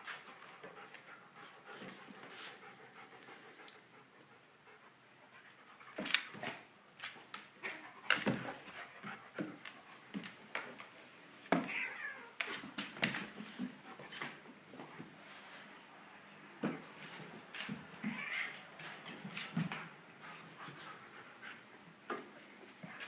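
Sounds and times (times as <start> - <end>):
cat cry: 11.6 - 12.4.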